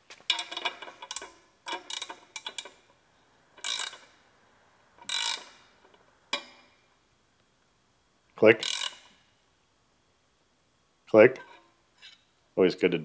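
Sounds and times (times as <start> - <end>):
ratchet wrench clicking: 0.3 - 2.8, 3.6 - 4.1, 5.0 - 5.7, 8.6 - 9.2.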